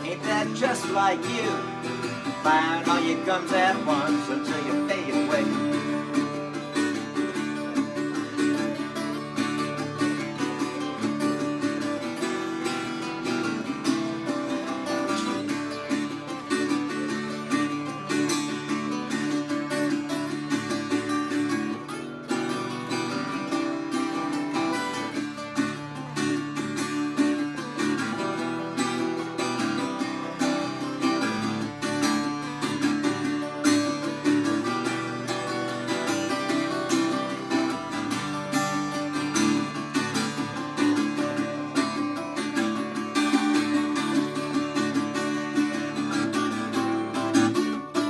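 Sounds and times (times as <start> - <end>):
acoustic guitars strumming and picking: 0.0 - 48.0.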